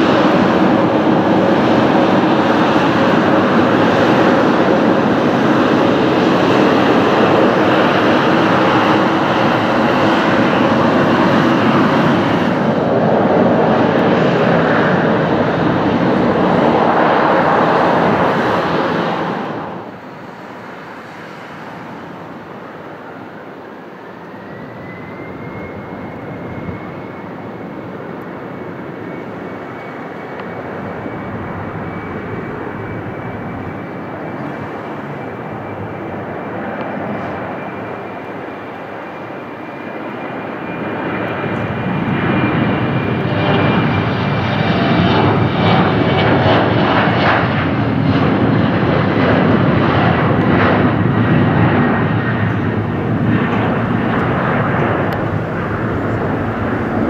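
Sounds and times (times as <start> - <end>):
jet engines whining at takeoff: 0.0 - 57.0.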